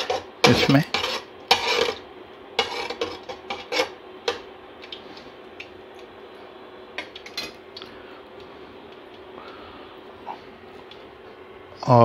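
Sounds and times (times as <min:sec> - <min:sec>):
spatula scraping metal pot: 0:00.0 - 0:02.0, 0:02.6 - 0:04.4
faint steady hum: 0:00.0 - 0:12.0.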